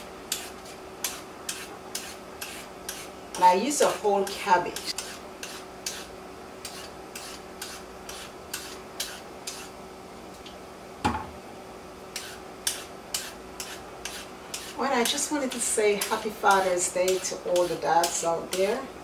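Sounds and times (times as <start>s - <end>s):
peeler scraping carrots: 0.0s - 9.7s, 12.1s - 18.8s
knock on wooden cutting board: 11.0s - 11.3s.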